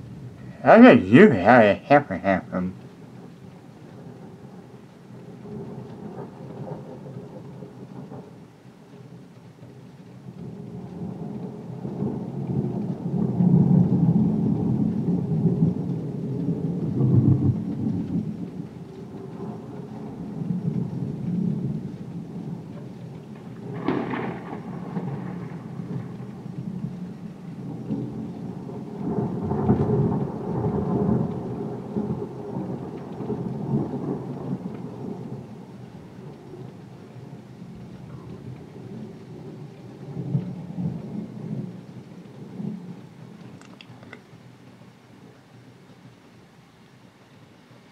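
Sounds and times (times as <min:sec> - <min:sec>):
thunder rumbling: 0:00.0 - 0:44.5
heavy rain: 0:00.0 - 0:47.9
sharp thunder crack: 0:23.6 - 0:27.0.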